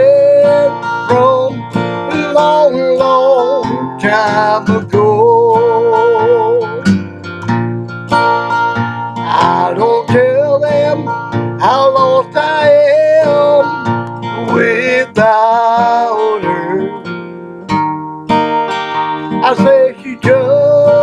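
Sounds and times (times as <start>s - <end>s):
man singing country song: 0.0s - 6.9s, 9.2s - 17.1s, 19.3s - 21.0s
acoustic guitar: 0.0s - 21.0s.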